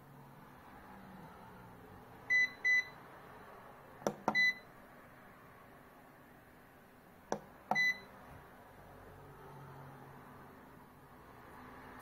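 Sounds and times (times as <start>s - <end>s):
control knob clicks: 4.0s - 4.4s.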